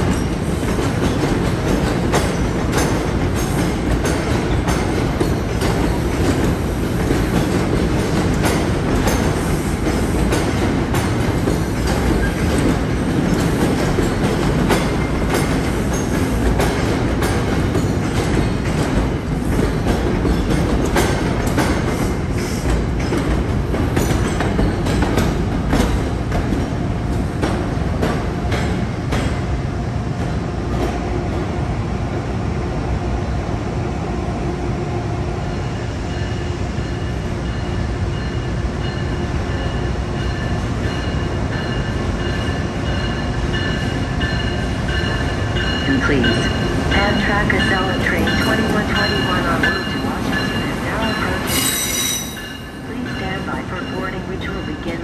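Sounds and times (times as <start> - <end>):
train wheels clicking over rail joints: 0.0 - 29.6
low train rumble: 0.0 - 55.0.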